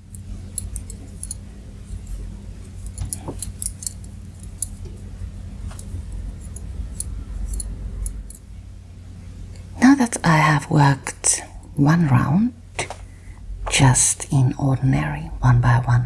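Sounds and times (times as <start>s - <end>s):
knitting needles clicking: 0.0s - 1.4s, 5.7s - 8.4s
low steady hum: 0.0s - 16.0s.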